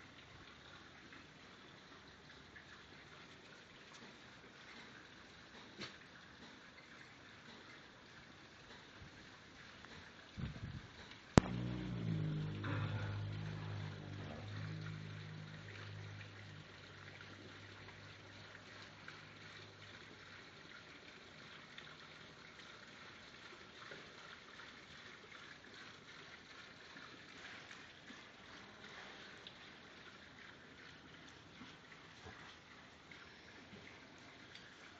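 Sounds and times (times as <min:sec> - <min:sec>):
faint steady hiss: 0:00.0 - 0:24.2
low hum: 0:11.4 - 0:20.2.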